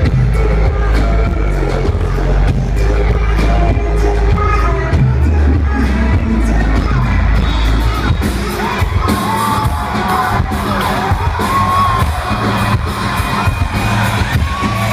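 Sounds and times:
live band playing loudly: 0.0 - 14.9
person singing: 0.0 - 14.9
crowd whooping: 7.6 - 14.9.

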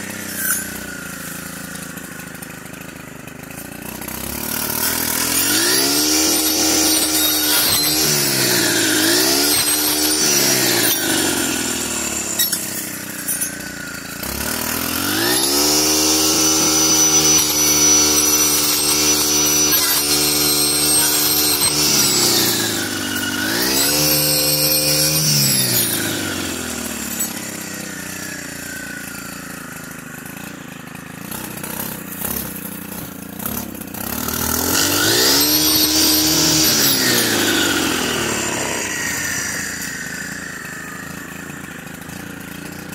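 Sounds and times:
brush cutter engine revving: 0.0 - 42.9.

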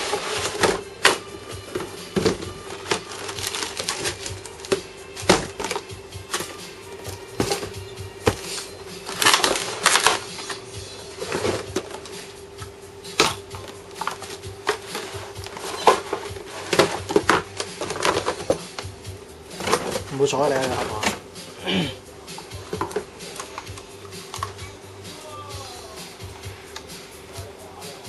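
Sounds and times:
clicks and knocks of hard plastic: 0.0 - 10.6, 13.2 - 18.9, 22.7 - 24.6.

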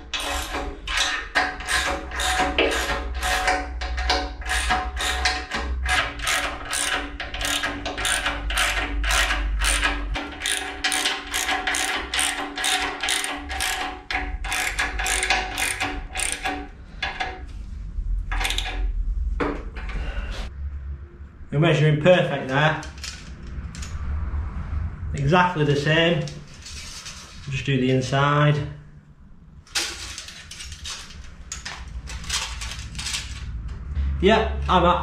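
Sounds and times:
ratchet spanner clicking: 0.0 - 17.3, 18.3 - 18.8.

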